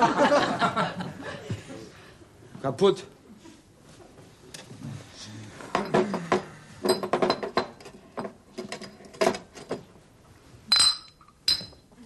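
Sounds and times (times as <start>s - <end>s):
glass clinking on wooden table: 5.8s - 9.4s, 10.7s - 11.8s.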